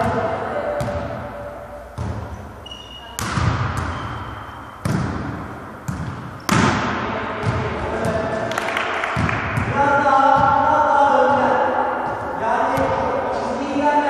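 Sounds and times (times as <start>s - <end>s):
volleyball hits echoing: 0.0s - 13.4s
shoes squeaking on court: 2.0s - 6.6s.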